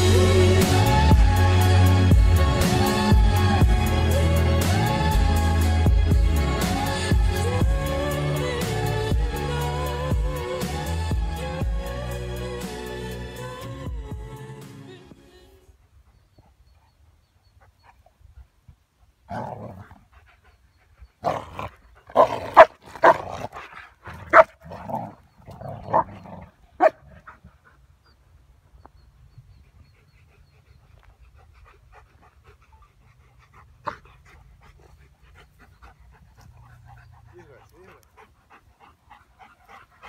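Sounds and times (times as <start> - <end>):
dogs barking: 21.2 - 23.5, 24.1 - 27.4.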